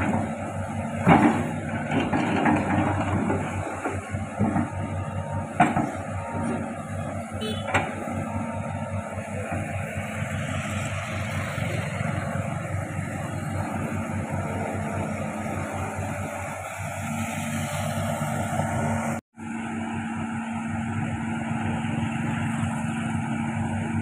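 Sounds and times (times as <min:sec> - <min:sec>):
excavator diesel engine running: 0:00.0 - 0:24.0.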